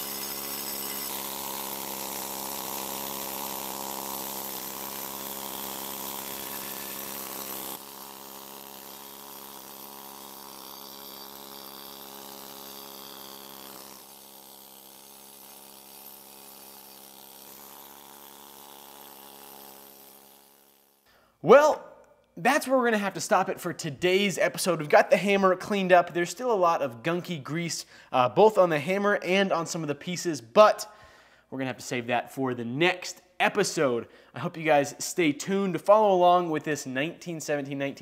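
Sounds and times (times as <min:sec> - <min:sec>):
needle scaler buzzing on metal: 0:00.0 - 0:21.0.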